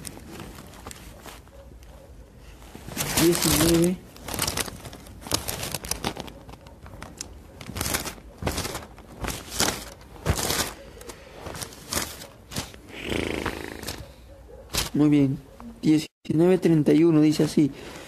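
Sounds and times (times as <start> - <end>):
book pages turning: 2.8 - 12.8.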